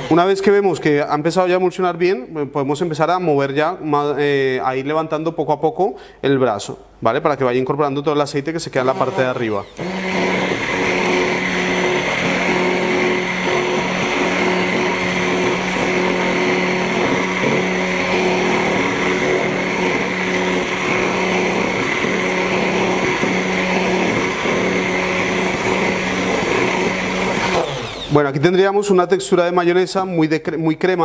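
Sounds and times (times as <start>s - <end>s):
immersion blender humming: 0.0s - 0.4s, 8.8s - 28.4s.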